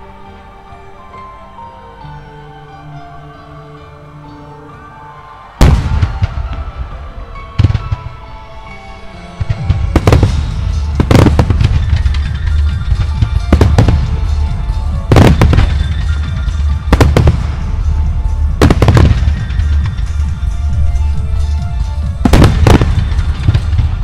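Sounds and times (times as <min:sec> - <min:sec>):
music: 0:00.0 - 0:24.0
fireworks bursting: 0:05.6 - 0:08.8, 0:09.4 - 0:24.0
fireworks rumble and crackle: 0:05.6 - 0:24.0.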